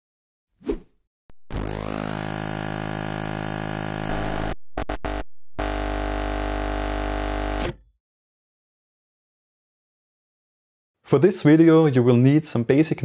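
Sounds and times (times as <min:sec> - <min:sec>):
synthesizer chord: 0:01.3 - 0:07.6
synthesizer stabs: 0:01.3 - 0:07.6.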